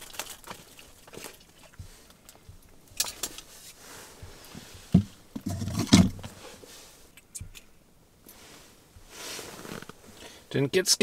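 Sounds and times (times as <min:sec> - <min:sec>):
rustling and knocking: 0:00.5 - 0:06.4.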